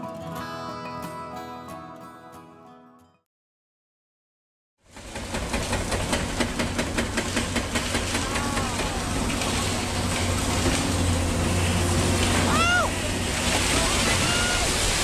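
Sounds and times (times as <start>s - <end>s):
rapid knocking of concrete breaker: 4.9s - 10.9s
diesel engines running: 5.0s - 15.0s.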